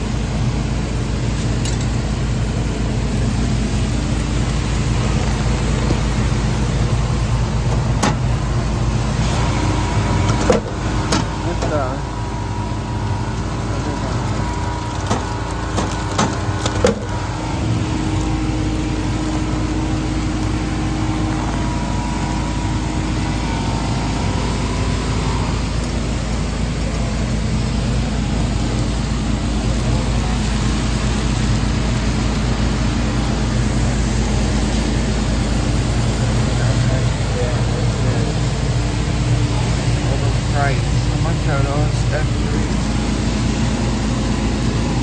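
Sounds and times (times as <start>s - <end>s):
delivery flap clicks and knocks: 15.0s - 17.2s.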